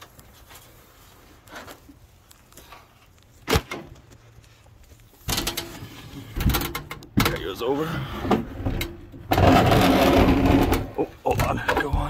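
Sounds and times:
panel scraping and rattling: 5.3s - 11.9s.

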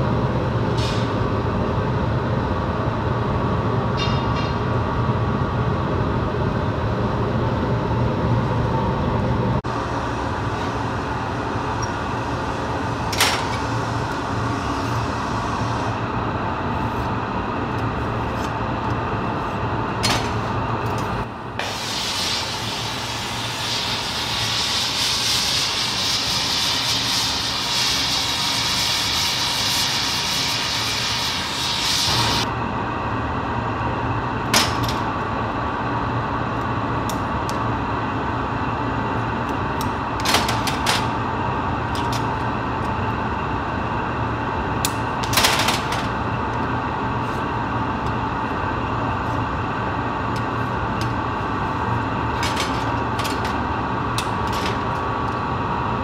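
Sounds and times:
steady machine hum: 0.0s - 56.0s
gas torch flame hissing: 21.6s - 32.5s.

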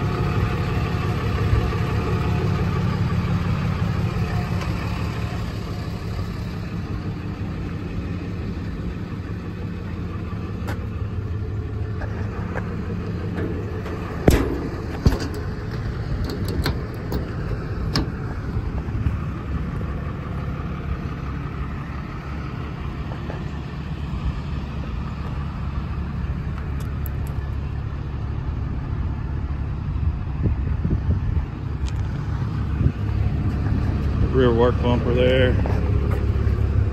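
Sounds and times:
diesel engine idling: 0.0s - 36.9s
door latch clicks and knocks: 16.2s - 17.4s.

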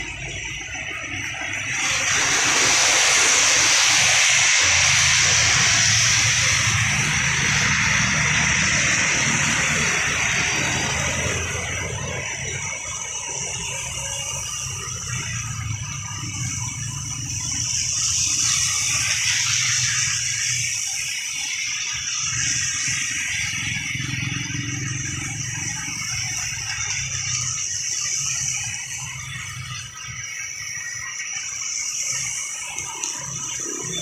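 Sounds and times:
tyres hissing on wet road: 0.0s - 34.0s.

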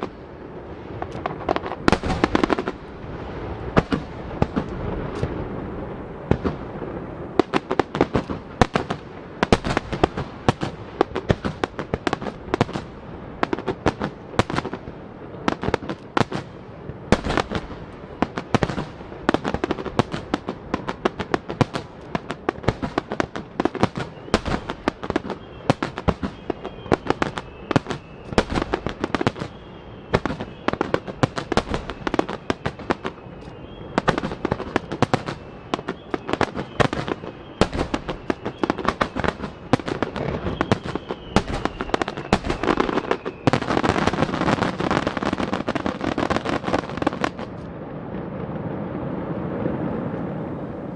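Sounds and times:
fireworks bursting: 0.0s - 50.9s
faint high whistles: 23.9s - 44.1s.

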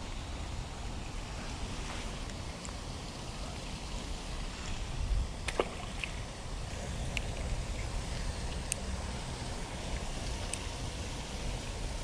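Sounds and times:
creek water flowing: 0.0s - 12.0s
wind on microphone: 3.4s - 12.0s.

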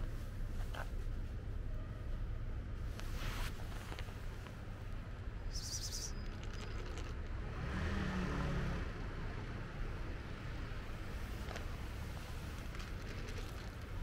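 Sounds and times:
low rumble of traffic: 0.0s - 14.0s
high bird chirp: 5.5s - 6.9s
vehicle passing: 5.8s - 14.0s.

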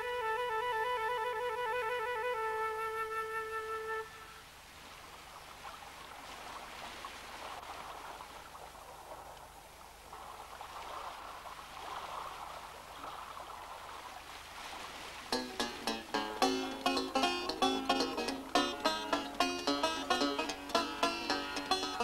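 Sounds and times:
shallow water rushing: 4.5s - 22.0s.

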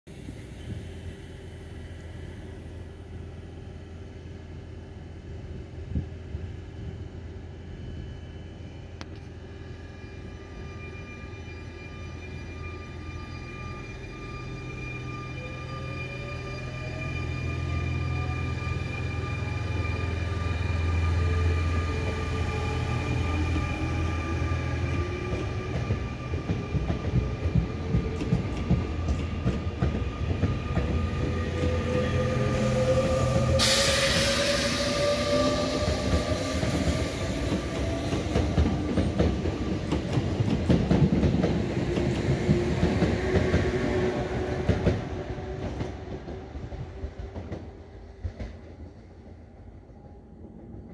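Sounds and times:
train wheels clattering on rails: 24.9s - 31.8s, 33.0s - 49.2s
loud hiss: 33.6s - 35.8s.

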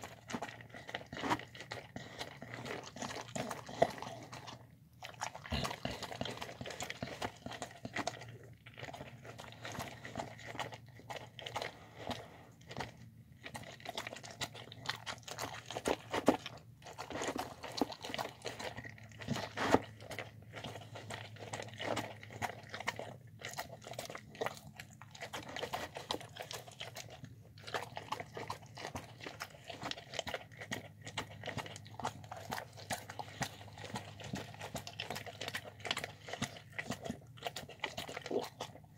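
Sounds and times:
dog chewing wetly: 0.0s - 38.9s.

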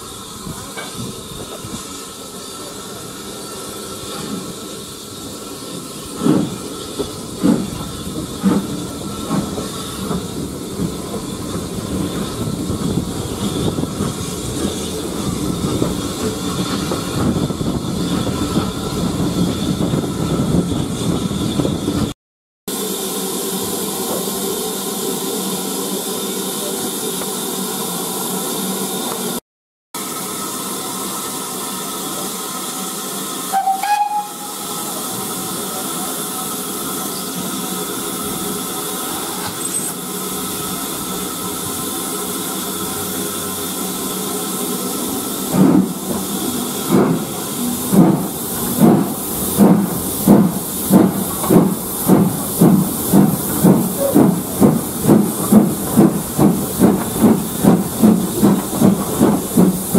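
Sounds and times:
steam hissing: 0.0s - 22.1s, 22.7s - 29.4s, 30.0s - 59.9s
steam locomotive exhaust chuffs: 30.0s - 59.9s.

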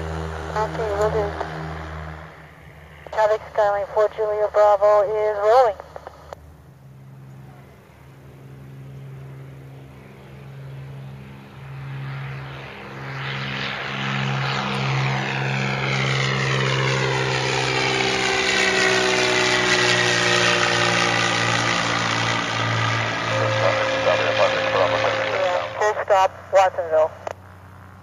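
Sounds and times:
propeller plane engine: 0.0s - 28.0s
sweeping phasing sound: 17.8s - 26.1s.

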